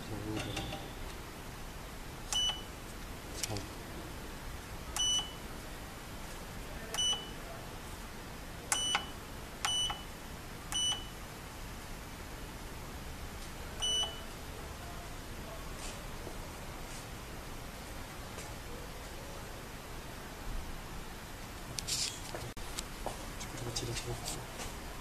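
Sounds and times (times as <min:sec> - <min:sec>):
short electronic beeps: 0:00.4 - 0:01.1, 0:05.0 - 0:05.4, 0:07.0 - 0:07.4, 0:10.7 - 0:11.1, 0:13.8 - 0:14.3.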